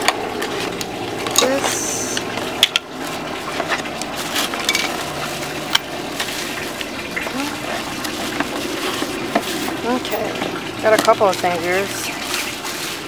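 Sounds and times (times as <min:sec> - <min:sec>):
running water: 0:00.0 - 0:13.0
bubble wrap crinkling: 0:03.1 - 0:13.0.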